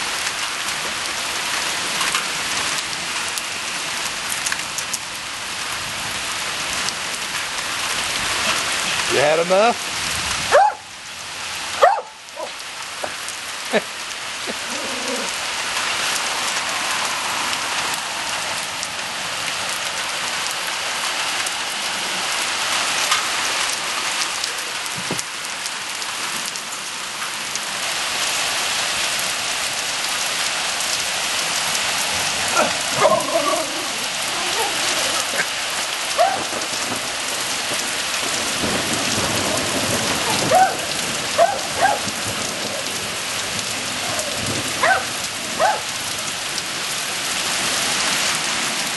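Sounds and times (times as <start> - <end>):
heavy rain falling: 0.0 - 48.9
thunder rumbling: 36.1 - 45.6.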